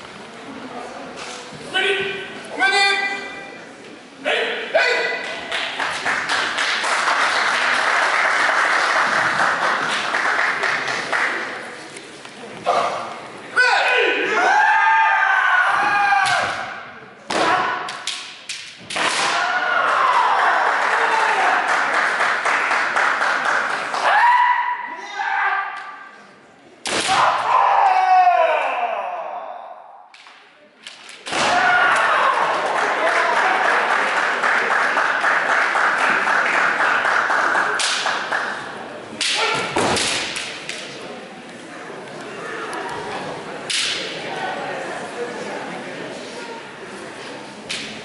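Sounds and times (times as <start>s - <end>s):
people shouting: 13.6s - 16.8s, 19.1s - 21.7s, 24.0s - 26.0s, 27.0s - 30.0s, 31.3s - 33.6s, 39.2s - 39.8s
bamboo swords striking: 16.2s - 19.6s, 26.8s - 27.6s, 30.2s - 31.8s, 39.2s - 40.9s, 43.7s - 44.1s.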